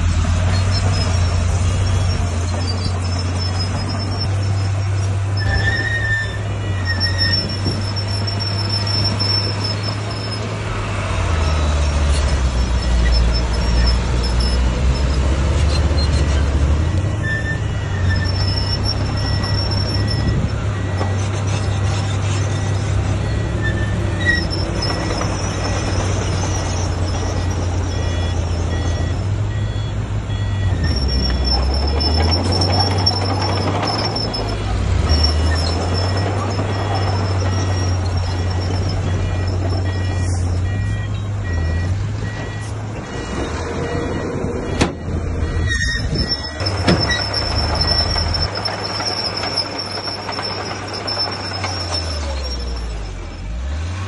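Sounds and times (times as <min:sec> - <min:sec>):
bulldozer diesel engine: 0:00.0 - 0:54.0
thin high squeal: 0:45.6 - 0:53.3.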